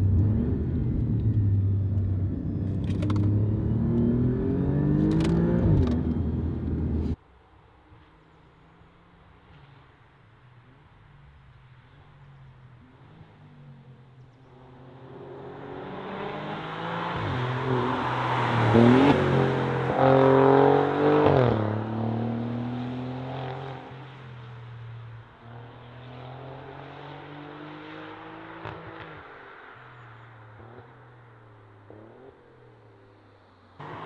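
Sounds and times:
car engine accelerating hard: 0.0s - 7.2s.

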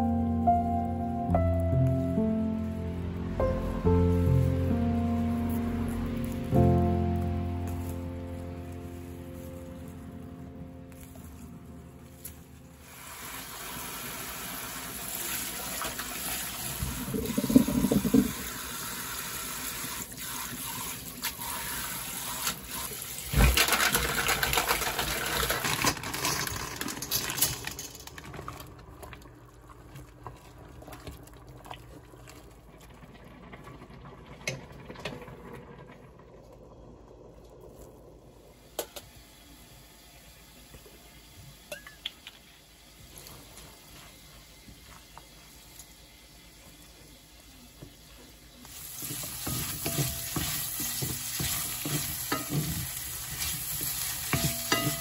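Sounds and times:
water pouring: 10.9s - 38.8s.

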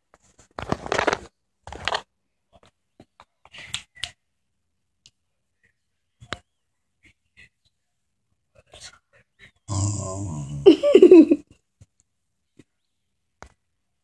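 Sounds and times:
rustling: 0.0s - 2.8s.

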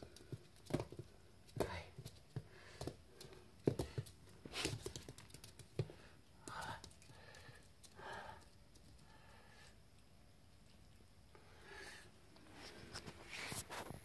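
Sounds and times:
puppy claws clicking on floor: 0.0s - 9.2s
soft scuffling: 12.4s - 14.0s.

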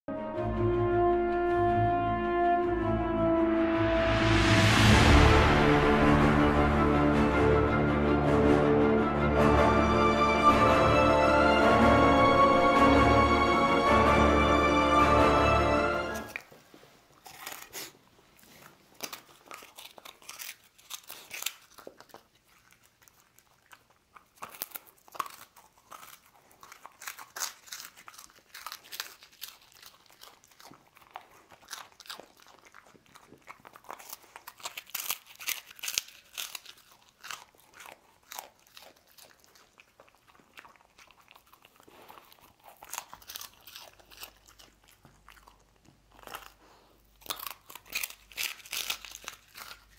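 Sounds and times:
dog chewing crunchy biscuits: 14.5s - 49.9s.

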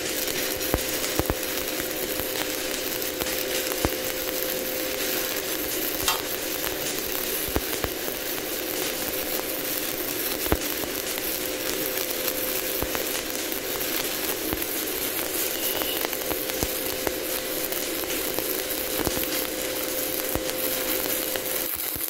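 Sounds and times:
steady hum: 0.0s - 21.8s
welding arc crackling and sizzling: 0.0s - 22.0s
sharp pops: 6.0s - 6.4s.

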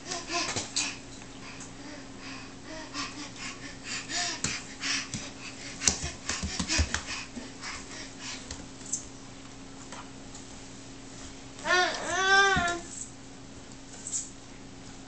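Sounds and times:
baby breathing in heavy huffs: 0.1s - 8.5s
hands and knees slapping on tile: 4.3s - 7.3s, 8.4s - 9.0s.

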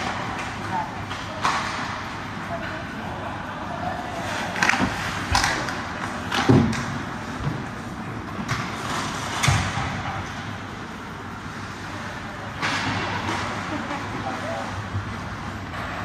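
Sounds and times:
hockey sticks and puck knocks: 0.0s - 2.0s, 4.5s - 7.7s, 8.4s - 10.1s.

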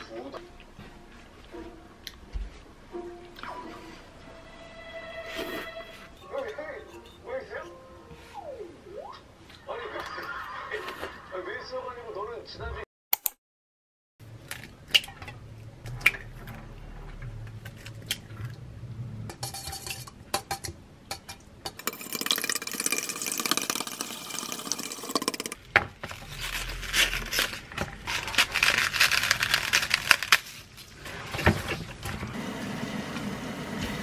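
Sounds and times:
eggs cracking: 21.1s - 25.6s.

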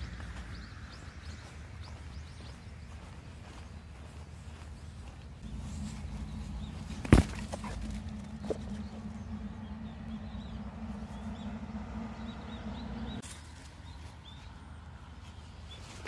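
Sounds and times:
steady low hum: 0.0s - 15.5s
ball kicked thud: 6.9s - 8.0s.

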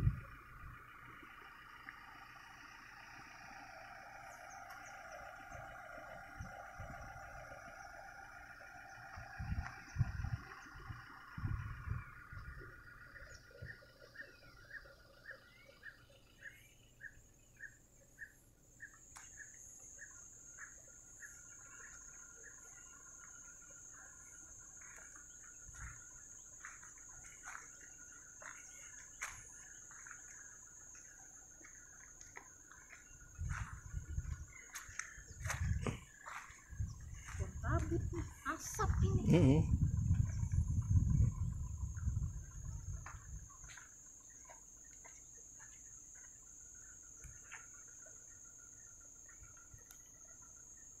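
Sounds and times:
high-pitched insect drone: 0.0s - 51.0s
soft insect chirping: 0.0s - 51.0s
light ticks: 18.9s - 19.9s, 49.3s - 50.2s.

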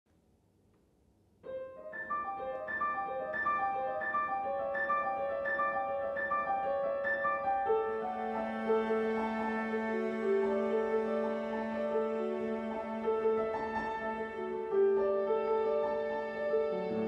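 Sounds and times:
piano broken chords: 1.4s - 17.0s.

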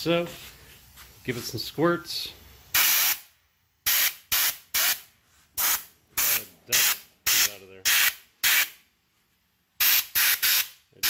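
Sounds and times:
compressed air blasts: 2.6s - 8.8s, 9.8s - 10.8s.

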